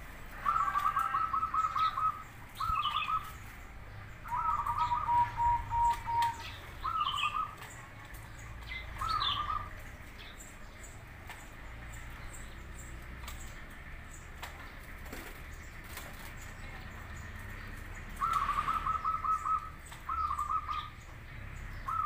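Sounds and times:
dove cooing: 0.0s - 3.5s, 4.1s - 10.3s, 17.9s - 21.0s, 21.8s - 22.0s.

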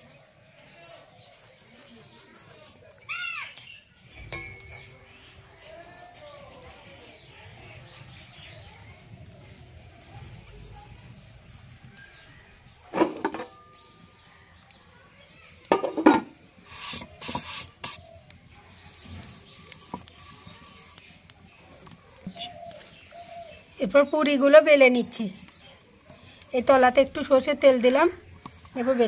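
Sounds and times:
rubbing on a wooden board: 1.1s - 2.8s, 16.7s - 18.0s.

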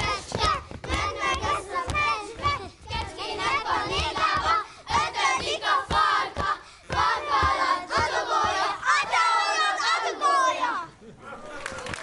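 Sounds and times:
dull rhythmic thumps: 0.0s - 9.5s
children chanting in unison: 0.0s - 10.9s.

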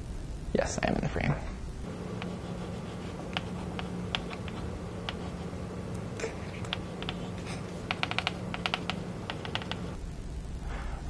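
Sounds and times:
steady low hum: 0.0s - 11.0s
chalk tapping on a blackboard: 1.9s - 5.6s, 6.6s - 10.0s.

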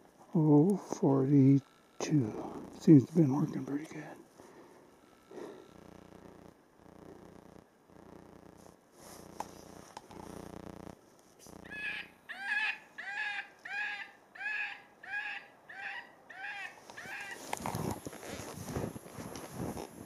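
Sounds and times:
low steady hum: 0.0s - 15.0s
rabbit distress cries from caller: 11.7s - 17.4s.

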